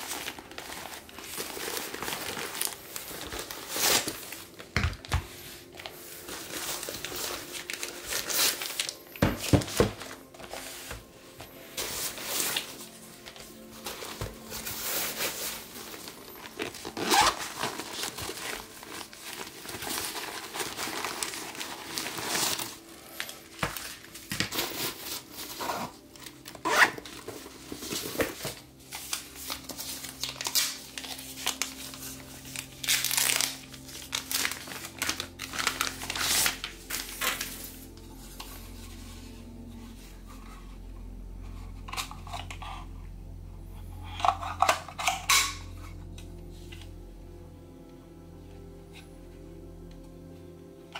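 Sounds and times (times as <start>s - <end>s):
plastic packaging crinkling: 0.0s - 11.0s, 11.6s - 40.4s.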